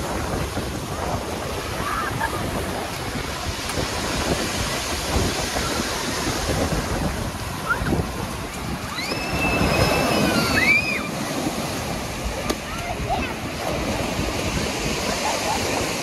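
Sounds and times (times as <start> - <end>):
surf breaking on pebble beach: 0.0 - 16.0
wind buffeting microphone: 0.0 - 16.0
high drawn-out cry: 8.9 - 11.1.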